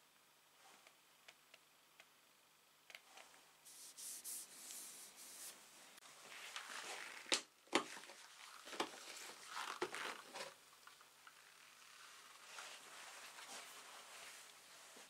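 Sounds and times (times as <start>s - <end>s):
cloth rubbing over metal: 3.7s - 5.6s
plastic scraping and rustling: 6.3s - 10.6s.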